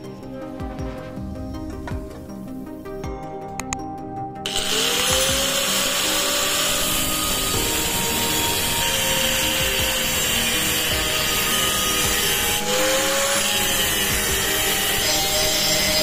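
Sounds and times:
angle grinder cutting steel: 0:04.5 - 0:16.0.

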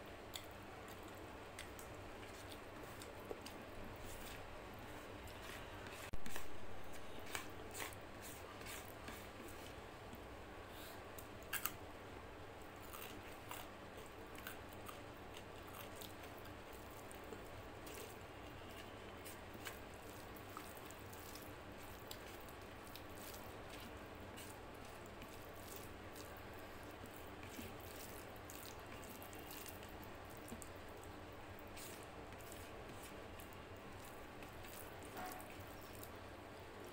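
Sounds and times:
fingers mixing rice on plate: 0:00.2 - 0:10.2, 0:14.4 - 0:36.2
chewing: 0:12.8 - 0:36.1.

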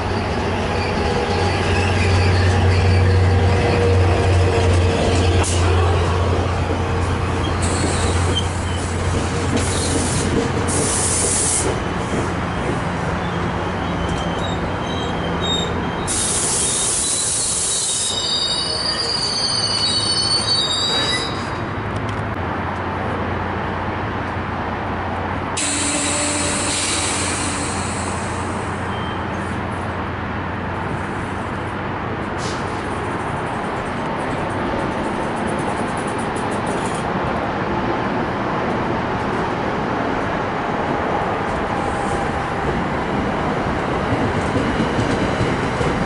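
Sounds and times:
passenger train moving slowly: 0:00.0 - 0:46.0
metallic wheel squeal: 0:00.1 - 0:04.1, 0:13.2 - 0:21.7
air hiss: 0:25.6 - 0:28.9.

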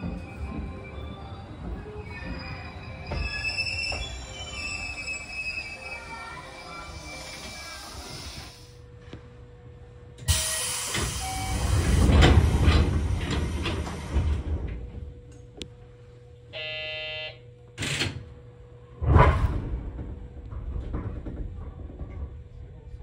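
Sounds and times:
train doors closing with air hiss: 0:00.0 - 0:08.8, 0:10.2 - 0:14.9
short buzzer tone: 0:16.6 - 0:17.4
deep rumble: 0:18.9 - 0:23.0.

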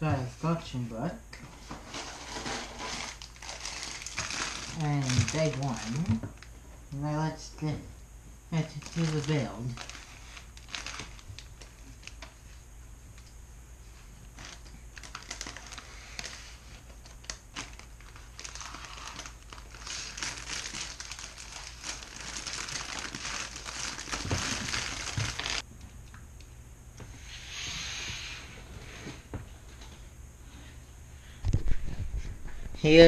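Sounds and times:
plastic bags crinkling: 0:01.6 - 0:06.5, 0:08.6 - 0:12.4, 0:14.3 - 0:25.6.

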